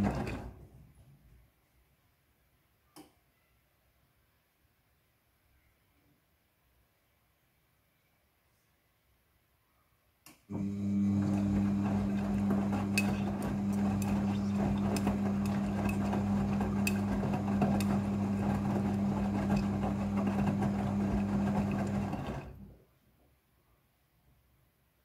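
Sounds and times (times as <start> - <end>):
wet clothes and water tumbling: 0.0 - 0.6, 10.7 - 22.6
washing machine motor hum: 0.0 - 0.7, 10.5 - 22.8.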